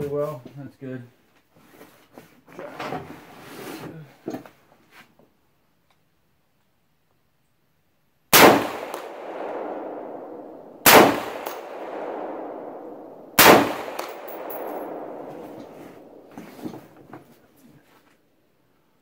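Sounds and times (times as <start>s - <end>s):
rifle shots with echo: 8.3s - 16.4s
bullet pinging steel target: 8.4s - 16.4s.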